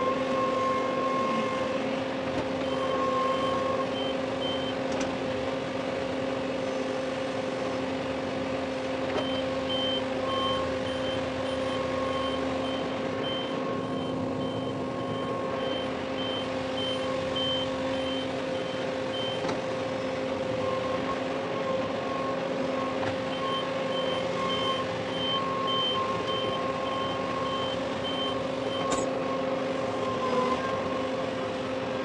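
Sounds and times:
tractor diesel engine running: 0.0 - 32.0
reverse alarm beeping: 2.6 - 4.8, 9.2 - 19.4, 21.6 - 29.4.

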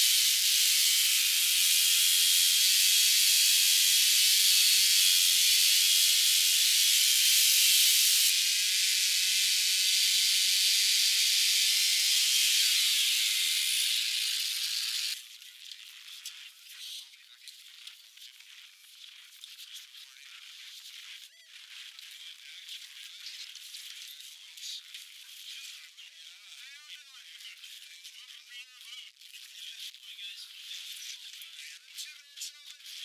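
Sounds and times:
chainsaw cutting ice: 0.0 - 15.2.

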